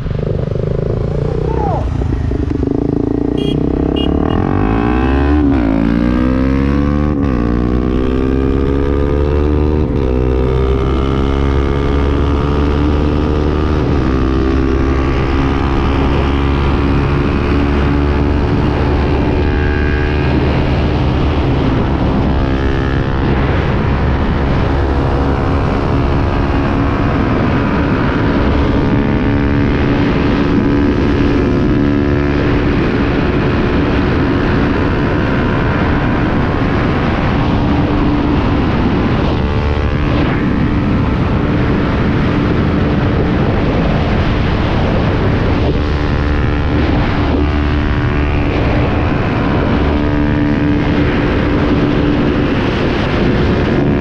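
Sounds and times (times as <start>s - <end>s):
motorcycles accelerating: 0.0s - 54.0s
wind noise: 0.0s - 54.0s.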